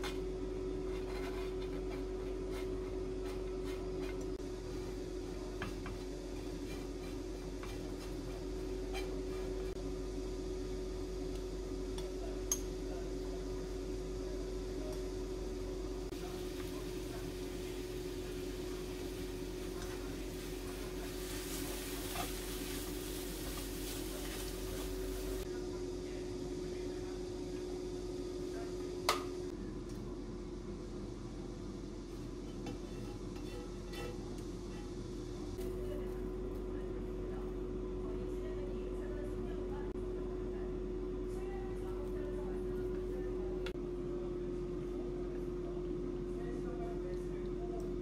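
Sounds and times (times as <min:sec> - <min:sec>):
chopsticks stirring in frying pan: 0:00.0 - 0:04.4, 0:05.4 - 0:09.8, 0:16.2 - 0:25.5, 0:32.1 - 0:35.0
steady hum: 0:00.0 - 0:48.0
sauce sizzling in a frying pan: 0:16.3 - 0:25.4
chopsticks stirring food: 0:16.5 - 0:25.5.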